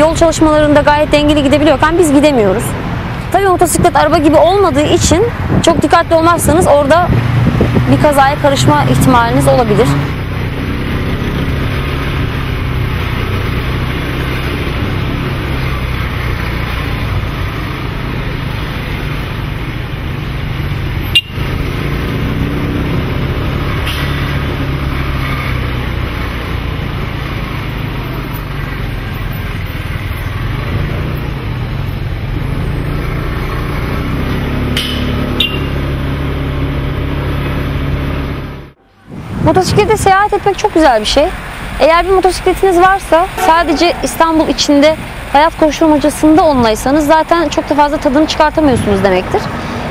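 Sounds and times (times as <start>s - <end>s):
motorcycle engine running: 26.1s - 38.8s.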